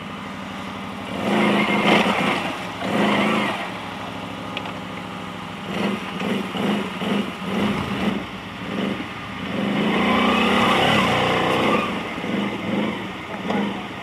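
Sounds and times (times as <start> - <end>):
atv engine revving: 0.0 - 14.0.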